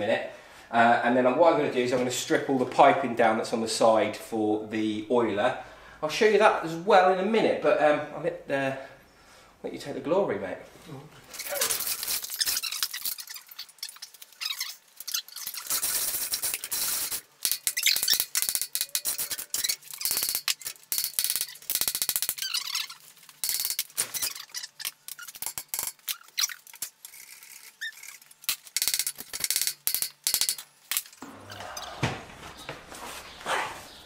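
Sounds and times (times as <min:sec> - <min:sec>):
squeaks: 0:11.3 - 0:16.2, 0:16.8 - 0:28.3.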